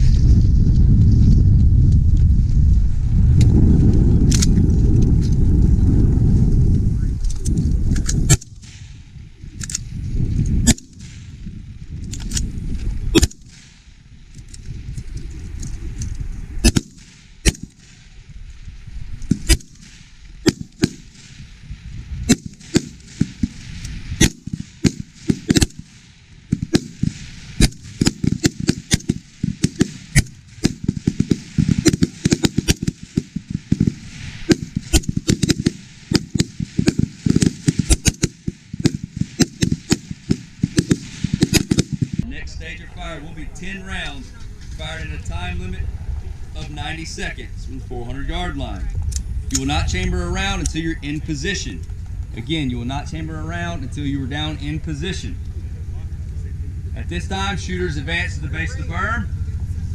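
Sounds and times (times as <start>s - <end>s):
rifle shots: 10.6s - 11.4s, 13.1s - 14.0s, 16.6s - 18.2s, 19.3s - 21.5s, 22.3s - 42.3s.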